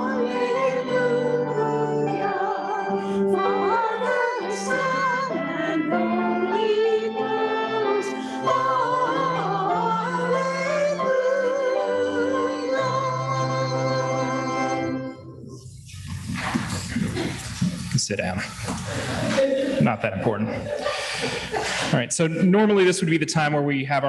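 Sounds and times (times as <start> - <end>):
congregation singing a hymn: 0.0 - 14.7.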